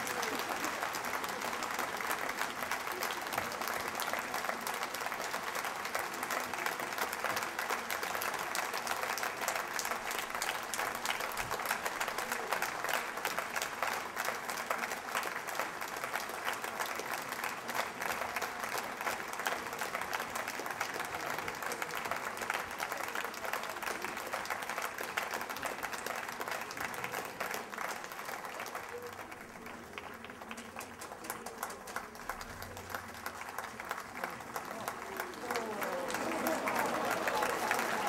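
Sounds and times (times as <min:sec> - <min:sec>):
audience applauding: 0:00.0 - 0:38.0.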